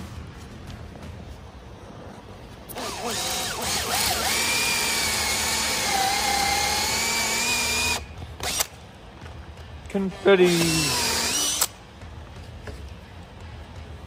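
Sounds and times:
cordless drill boring into wood: 2.8s - 8.7s, 10.5s - 11.7s.

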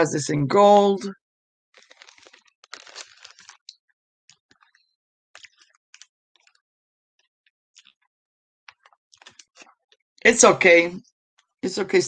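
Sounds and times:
plastic bags crinkling: 1.8s - 6.6s.

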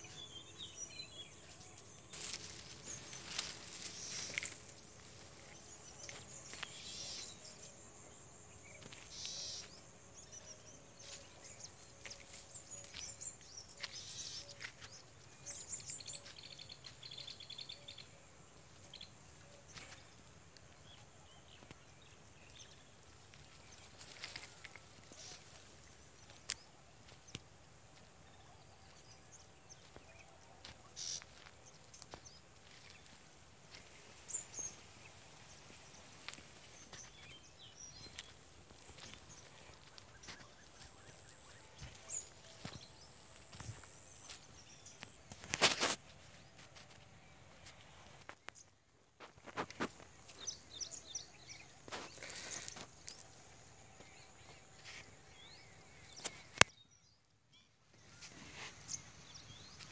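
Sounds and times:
crop stalks rustling: 1.4s - 7.5s, 23.1s - 28.1s, 29.8s - 48.6s, 51.8s - 53.3s
bird chirps: 8.5s - 18.1s.

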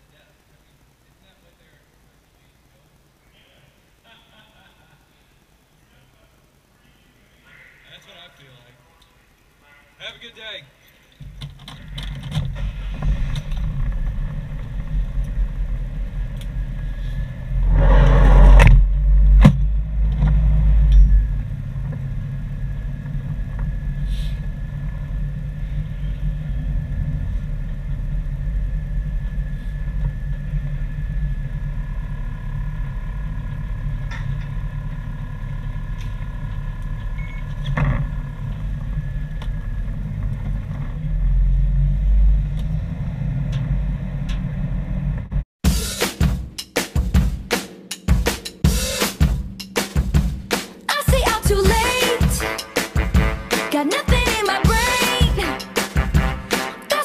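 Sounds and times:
truck engine rumbling: 11.2s - 45.5s.

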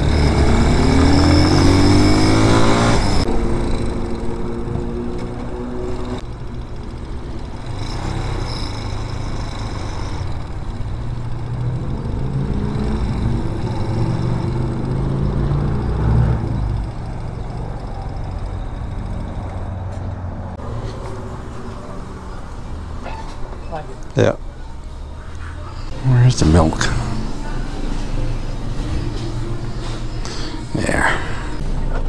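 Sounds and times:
motorcycle engine running: 0.0s - 22.9s.

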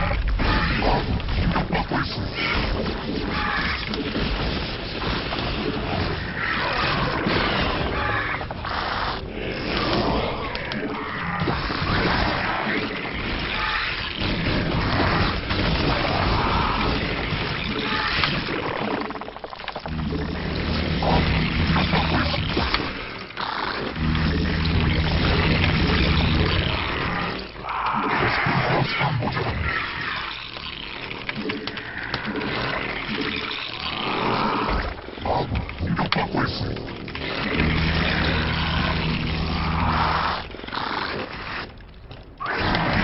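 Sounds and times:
video game battle sounds: 0.0s - 30.4s.

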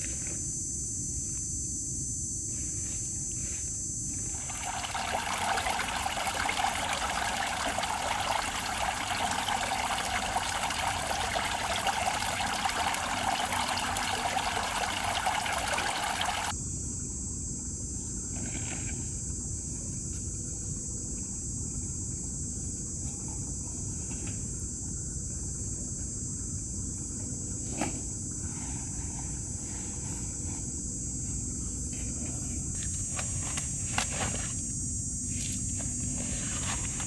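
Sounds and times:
steady high-pitched hiss: 0.0s - 18.3s
water running and trickling: 4.4s - 16.5s.

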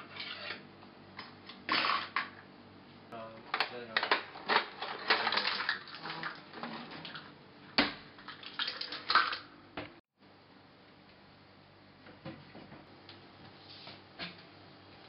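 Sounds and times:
utensils clattering in drawer: 3.9s - 5.7s.

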